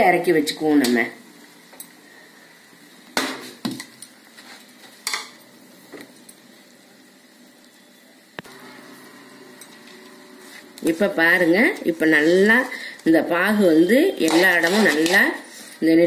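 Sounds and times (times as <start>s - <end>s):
spoon scraping a metal pan: 14.1s - 15.8s.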